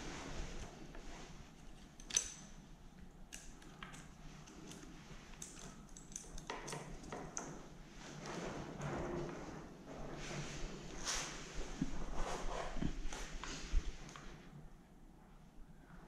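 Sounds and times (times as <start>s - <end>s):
metallic clicks of saw chain: 1.8s - 2.6s.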